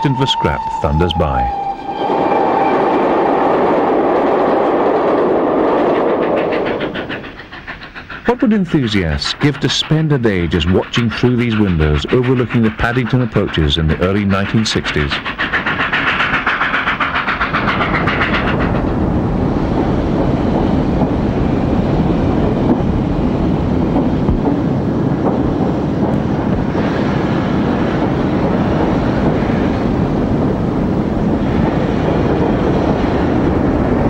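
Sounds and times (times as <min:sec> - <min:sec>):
steam train passing: 0:00.0 - 0:34.0.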